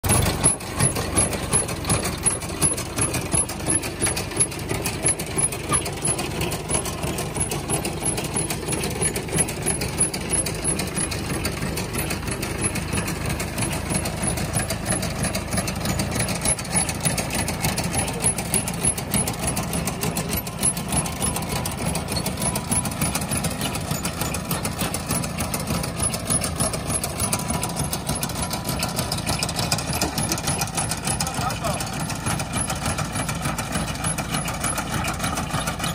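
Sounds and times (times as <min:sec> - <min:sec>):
hay wagon mechanism clattering: 0:00.0 - 0:35.9
tractor engine running: 0:00.0 - 0:35.9.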